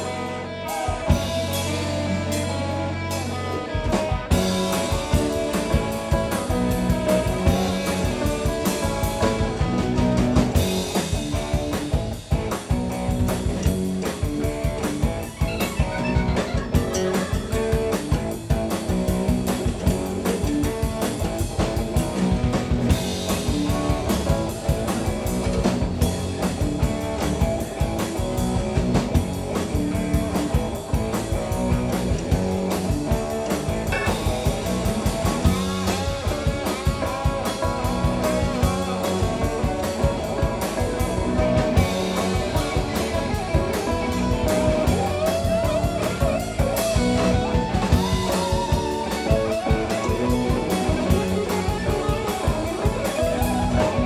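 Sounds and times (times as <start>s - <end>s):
electric guitar: 0.0s - 54.0s
live rock band: 0.0s - 54.0s.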